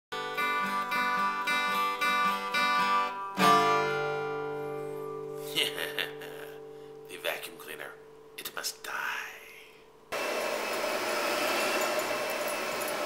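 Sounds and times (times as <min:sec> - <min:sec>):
acoustic guitar strumming: 0:00.1 - 0:08.4
guitar chord ringing: 0:00.2 - 0:08.4.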